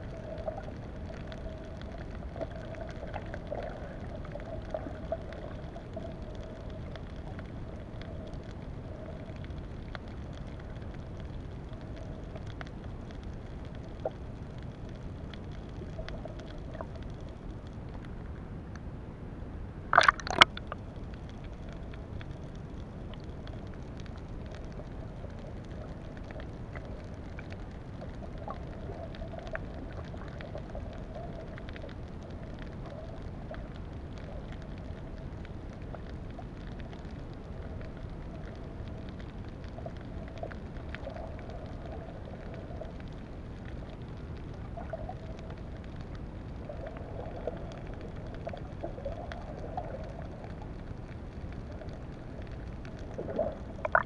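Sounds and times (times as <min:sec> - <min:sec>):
faint crackling ticks: 0:00.0 - 0:18.9, 0:19.9 - 0:54.0
low rush of water: 0:15.1 - 0:39.4, 0:46.2 - 0:54.0.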